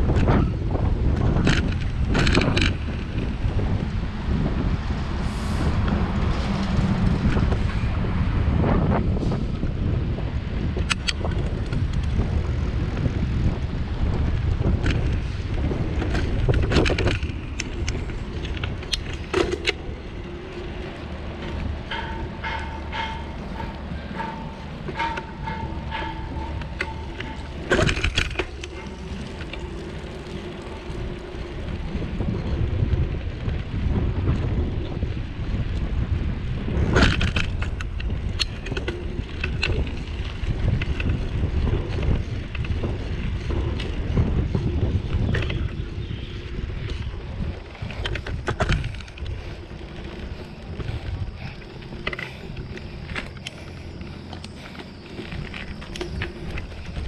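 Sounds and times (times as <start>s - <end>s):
bicycle rolling on rough concrete: 0.0s - 57.0s
wind buffeting microphone: 0.0s - 57.0s
thin steady whine: 16.5s - 32.5s, 38.4s - 57.0s.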